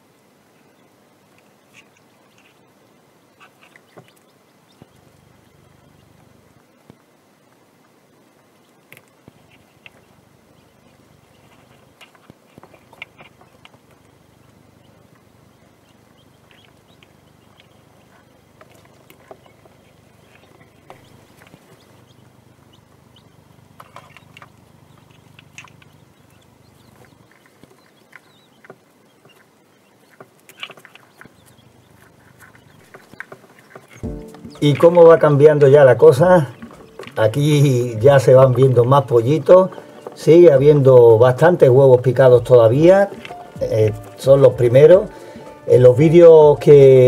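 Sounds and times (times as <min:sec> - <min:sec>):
chicks peeping faintly: 0:00.0 - 0:47.0.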